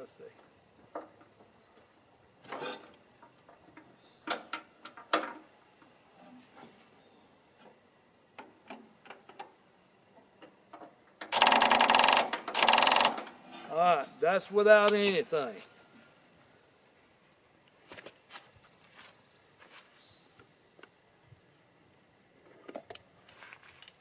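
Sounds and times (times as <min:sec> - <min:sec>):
tractor starter clattering: 0:11.2 - 0:13.4.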